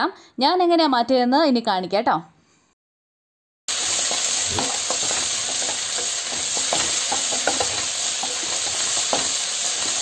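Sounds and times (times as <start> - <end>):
vegetables sizzling in oil: 3.7 - 10.0
wooden spatula scraping pan: 3.8 - 10.0.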